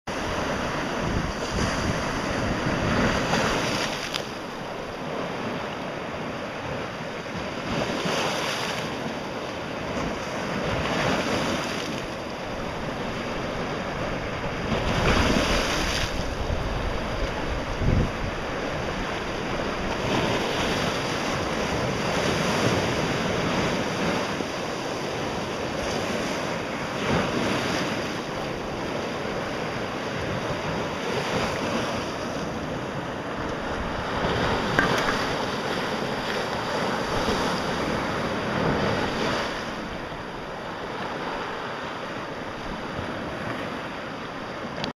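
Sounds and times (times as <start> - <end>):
small waves breaking on rock: 9.8 - 41.9.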